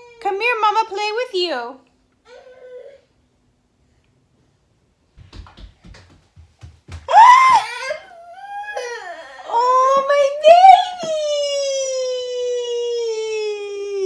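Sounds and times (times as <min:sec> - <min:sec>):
toddler whining and crying: 0:02.2 - 0:03.2, 0:07.1 - 0:14.0.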